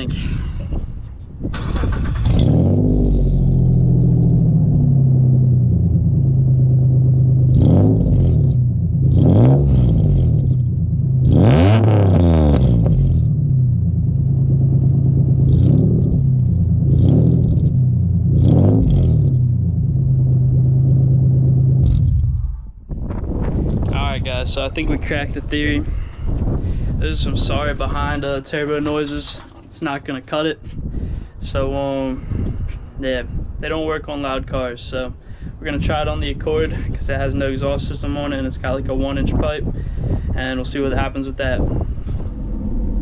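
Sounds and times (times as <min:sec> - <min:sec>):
car engine starting and revving: 0:01.4 - 0:22.6, 0:41.4 - 0:43.0.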